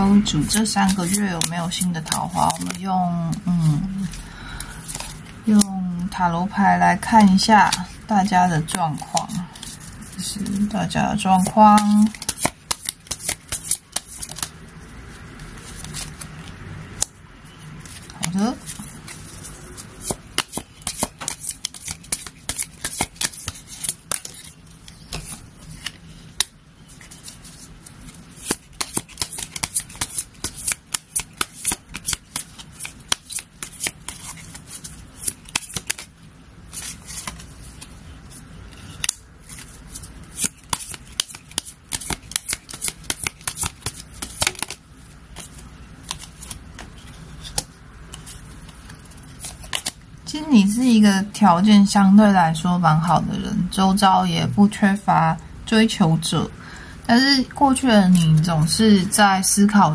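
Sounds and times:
cards being shuffled: 0:00.5 - 0:05.7, 0:07.0 - 0:14.6, 0:15.2 - 0:17.2, 0:17.8 - 0:50.0.

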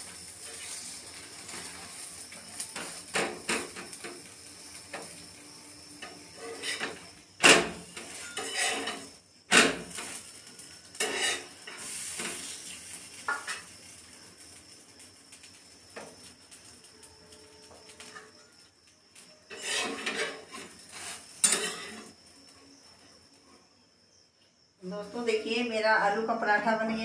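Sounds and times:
spatula scraping metal griddle: 0:00.3 - 0:10.3, 0:10.9 - 0:12.7, 0:19.5 - 0:22.2.

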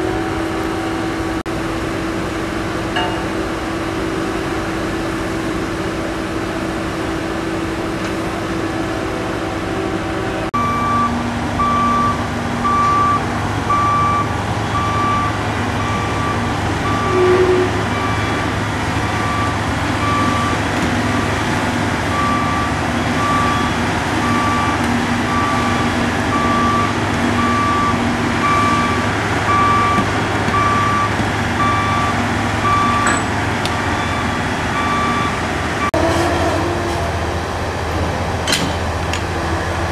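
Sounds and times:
construction machinery engine drone: 0:00.0 - 0:39.9
reversing alarm beeps: 0:10.6 - 0:20.6, 0:22.1 - 0:36.0.

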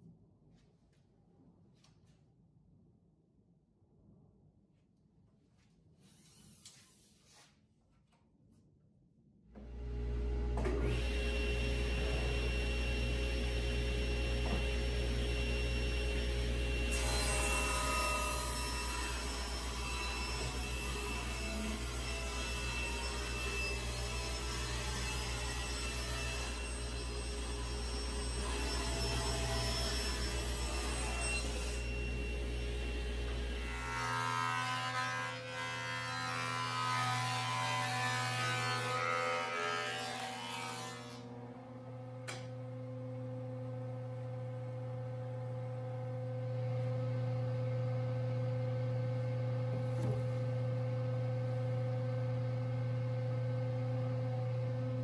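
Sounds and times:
table saw running: 0:09.6 - 0:44.0.

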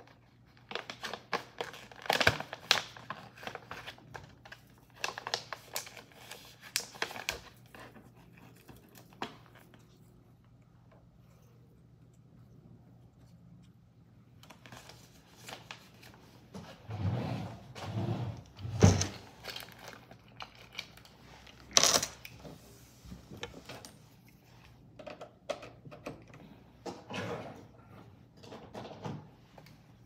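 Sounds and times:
plastic snack packet rustling: 0:00.0 - 0:10.1, 0:19.3 - 0:22.3
faint low hum: 0:03.5 - 0:21.6.

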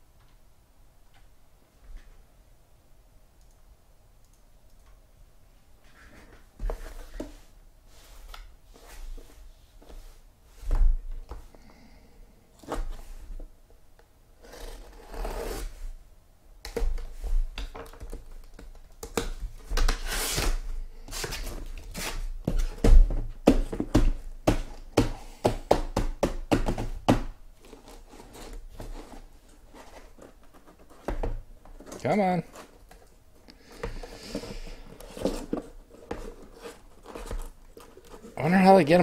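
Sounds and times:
boxes knocking and thumping: 0:22.4 - 0:27.4, 0:33.7 - 0:38.4
cardboard flaps scraping and rustling: 0:27.6 - 0:33.0, 0:33.8 - 0:39.0.

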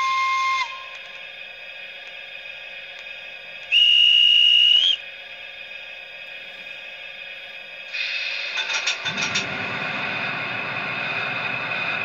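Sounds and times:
high steady whistle tone: 0:00.0 - 0:01.1, 0:03.7 - 0:05.1
model locomotive running hum: 0:00.0 - 0:12.0.

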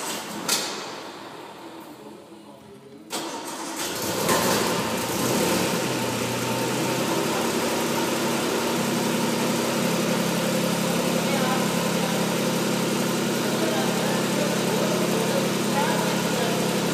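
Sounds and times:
car starter cranking: 0:03.1 - 0:06.8
car engine idling: 0:03.2 - 0:16.9.

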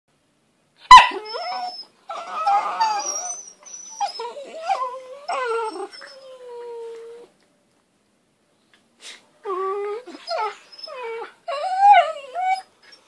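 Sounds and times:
puppy yelp: 0:00.8 - 0:06.4
puppies whining: 0:00.9 - 0:07.3, 0:09.4 - 0:13.0
puppies grumbling: 0:01.2 - 0:07.3.

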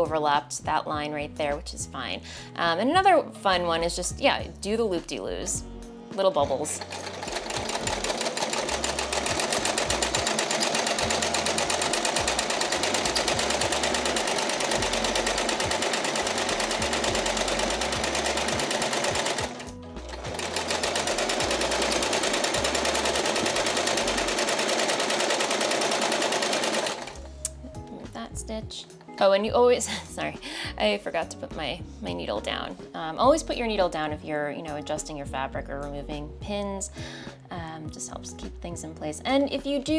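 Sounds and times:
sewing machine stitching fast: 0:06.4 - 0:27.3.

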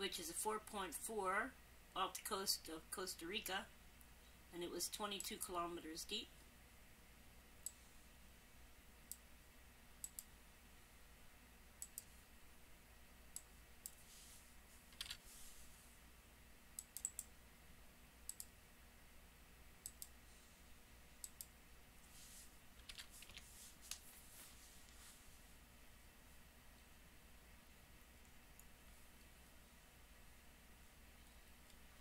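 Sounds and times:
computer mouse clicks: 0:10.0 - 0:10.3, 0:11.8 - 0:12.1, 0:14.9 - 0:15.2, 0:16.8 - 0:17.3, 0:18.3 - 0:18.5, 0:19.8 - 0:20.2, 0:21.2 - 0:21.5.

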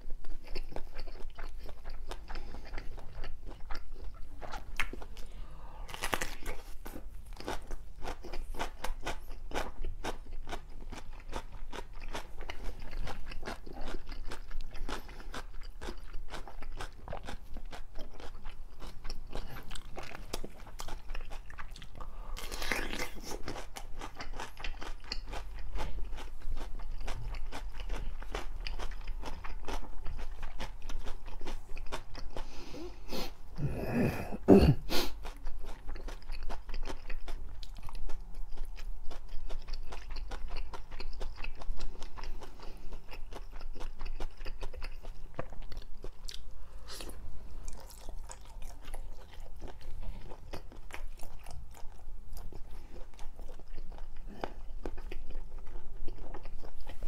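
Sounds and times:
crunching and chewing cucumber: 0:00.0 - 0:32.6, 0:35.1 - 0:57.0
mouth sounds: 0:32.8 - 0:35.2.

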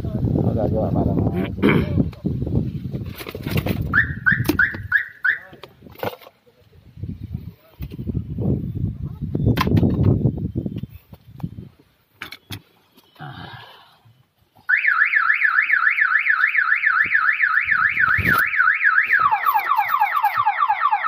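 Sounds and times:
car alarm siren warbling: 0:03.9 - 0:05.5, 0:14.7 - 0:21.0.

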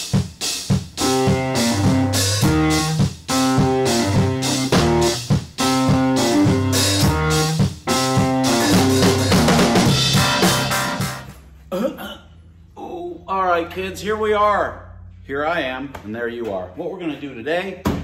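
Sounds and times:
intro music with drum beat: 0:00.0 - 0:11.5.

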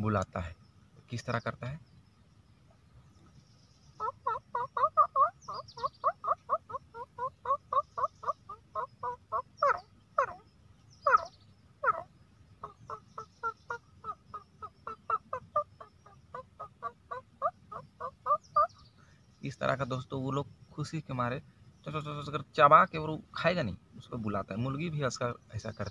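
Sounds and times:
man imitating partridge call: 0:04.0 - 0:18.7.

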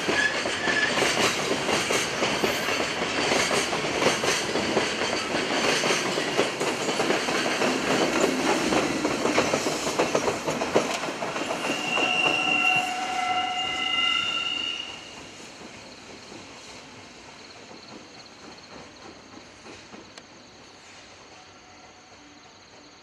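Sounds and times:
train wheels clattering over joints: 0:00.0 - 0:21.4
train rumble: 0:00.0 - 0:23.0
high squeal: 0:11.4 - 0:15.2.

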